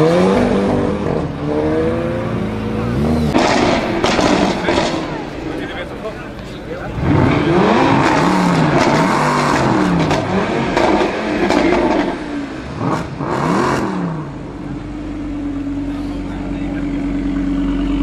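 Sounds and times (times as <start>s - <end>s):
car engine revving: 0.0s - 18.0s
exhaust cracks: 3.1s - 14.8s.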